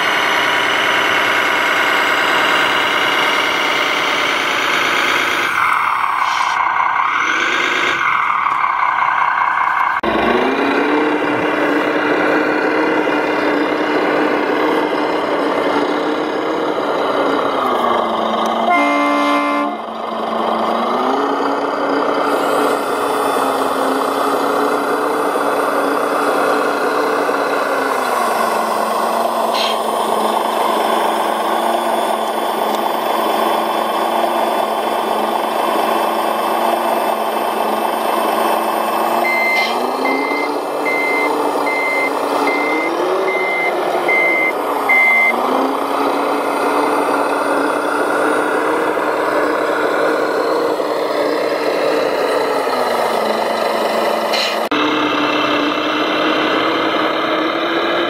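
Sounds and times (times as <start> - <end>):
model crane engine running: 0.0 - 6.4, 9.1 - 58.0
brief horn note: 18.6 - 19.8.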